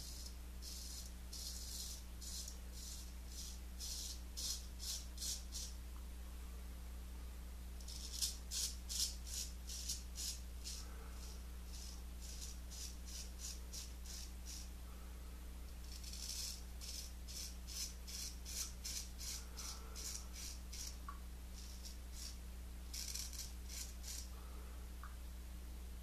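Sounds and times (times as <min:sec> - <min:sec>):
razor scraping stubble: 0:07.9 - 0:14.7, 0:15.8 - 0:21.0, 0:21.6 - 0:24.3.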